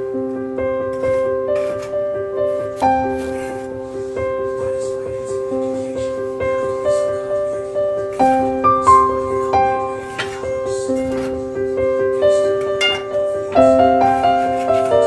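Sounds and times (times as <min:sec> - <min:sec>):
gentle piano music: 0:00.0 - 0:15.0.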